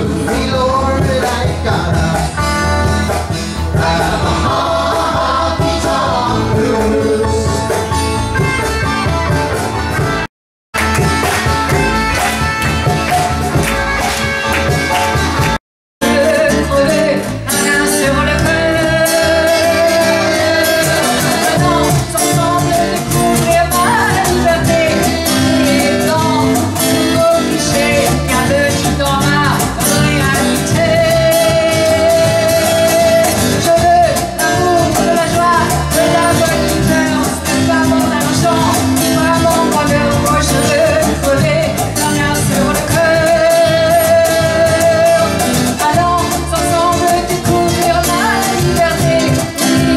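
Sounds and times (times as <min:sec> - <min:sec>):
guitar: 0:00.0 - 0:49.9
accordion: 0:02.5 - 0:27.4
woman singing into microphone: 0:16.0 - 0:49.9.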